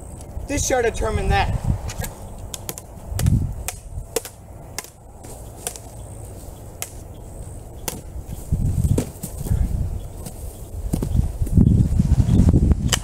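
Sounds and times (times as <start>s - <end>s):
low rumbles: 0.0s - 13.0s
swords clacking: 2.5s - 5.0s, 5.6s - 5.9s.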